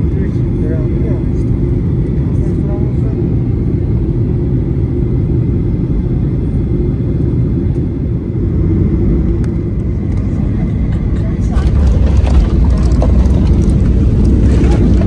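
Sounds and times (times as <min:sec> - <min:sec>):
airplane cabin rumble: 0:00.0 - 0:15.0.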